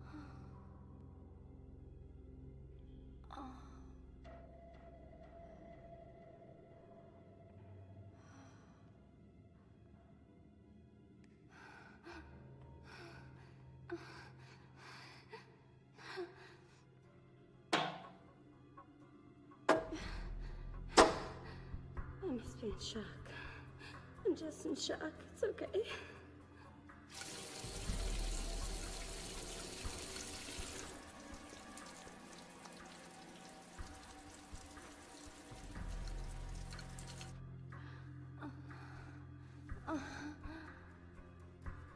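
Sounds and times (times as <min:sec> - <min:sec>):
water running from a tap: 0:27.1 - 0:37.4.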